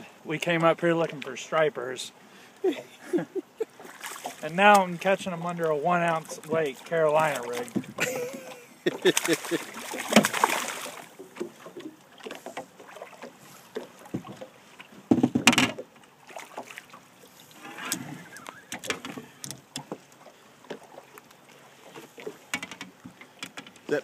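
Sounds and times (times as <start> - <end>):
water lapping at boat hull: 0.0 - 24.0
knocks and rustles: 7.6 - 8.3, 15.0 - 15.8, 22.5 - 23.9.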